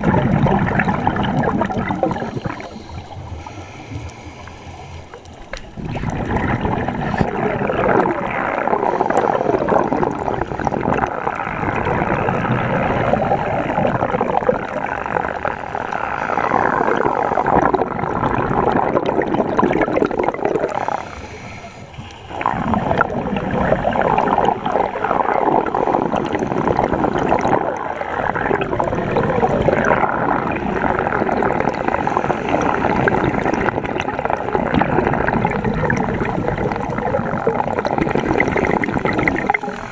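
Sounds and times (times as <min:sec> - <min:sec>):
underwater bubbling and rushing water: 0:00.0 - 0:39.9.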